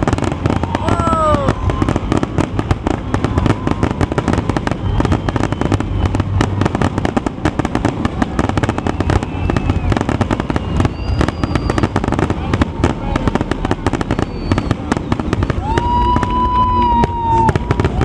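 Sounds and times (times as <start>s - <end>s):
fireworks bursting: 0.0s - 18.0s.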